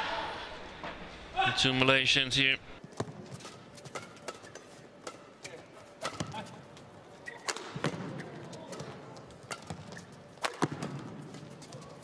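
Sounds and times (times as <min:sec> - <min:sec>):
rackets hitting shuttlecock: 0:02.9 - 0:12.0.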